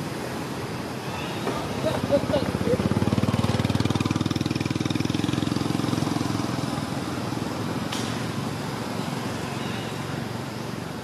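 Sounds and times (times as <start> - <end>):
small engine running: 2.0 - 7.8.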